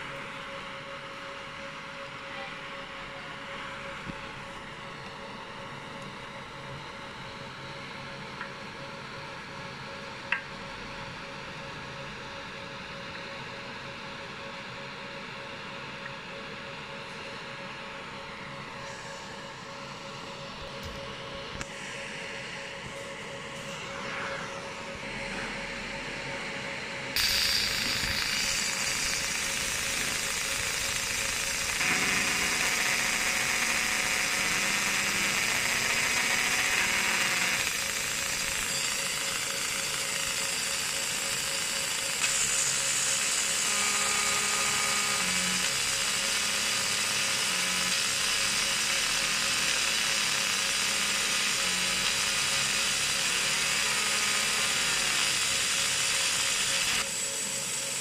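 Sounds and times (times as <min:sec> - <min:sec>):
laser engraver buzzing hiss: 0:16.8 - 0:58.0.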